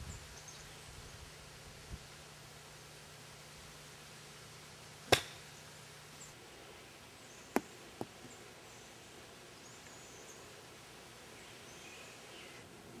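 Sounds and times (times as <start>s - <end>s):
golf club striking ball: 5.1s - 5.4s.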